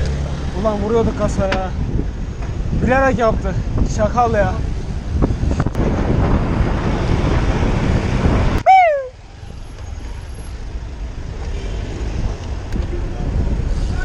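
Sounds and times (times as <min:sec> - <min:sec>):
wind buffeting microphone: 0:00.0 - 0:09.8, 0:10.6 - 0:14.0
road noise rumble: 0:00.0 - 0:14.0
short loud falling call: 0:08.6 - 0:09.2.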